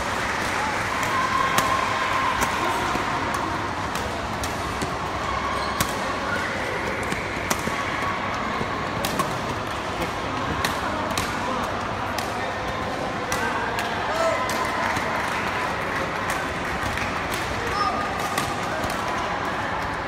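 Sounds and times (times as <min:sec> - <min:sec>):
murmur of crowd: 0:00.0 - 0:20.0
racket hitting shuttlecock: 0:00.9 - 0:19.3.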